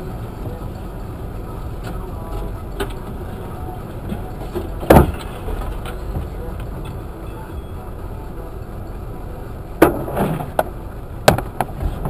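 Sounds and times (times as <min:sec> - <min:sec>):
steady low rumble: 0:00.0 - 0:12.0.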